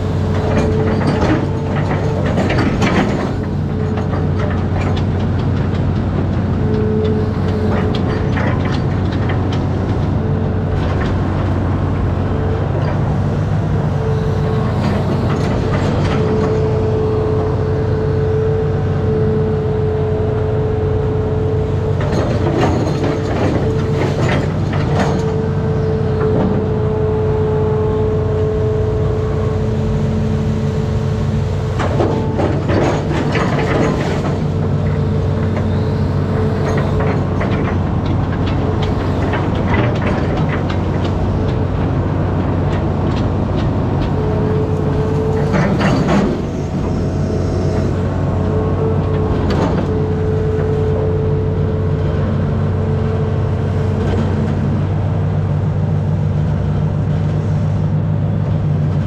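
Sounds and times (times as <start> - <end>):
diesel engine running under load: 0.0 - 59.0
metal clanks and rattles: 0.3 - 6.8, 7.4 - 11.6, 21.9 - 26.6, 31.7 - 50.5
hydraulic whine: 6.2 - 55.2.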